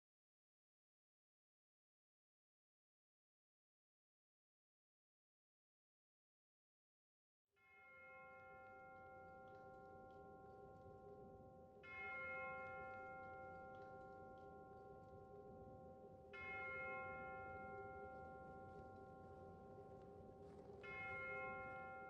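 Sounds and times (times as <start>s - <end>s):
slow bell tones: 7.6s - 22.0s.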